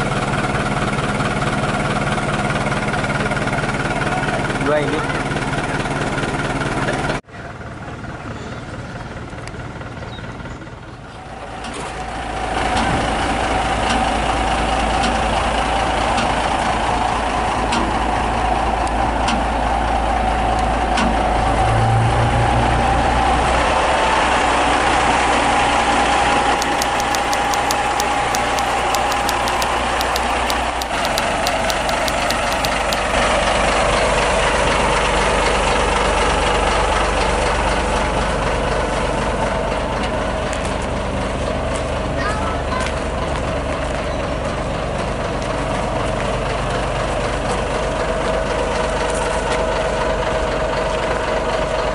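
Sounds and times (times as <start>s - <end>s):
rapid ticking: 26.6s - 33.2s.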